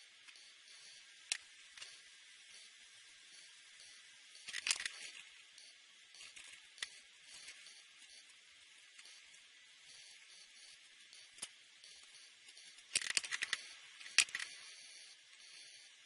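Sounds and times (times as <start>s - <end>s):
small clicks: 4.4s - 7.8s, 11.2s - 14.8s.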